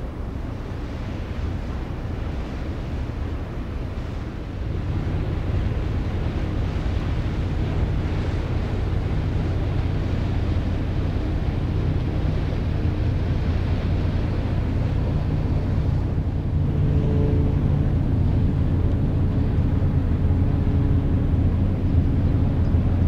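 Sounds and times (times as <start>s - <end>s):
ship diesel engine drone: 0.0s - 23.0s
wind buffeting microphone: 0.0s - 23.0s.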